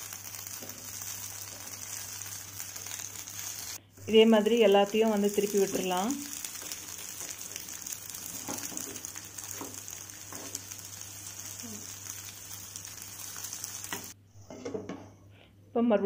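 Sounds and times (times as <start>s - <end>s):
slices sizzling in oil: 0.0s - 14.2s
turner scraping and tapping pan: 8.3s - 10.8s, 13.8s - 15.0s.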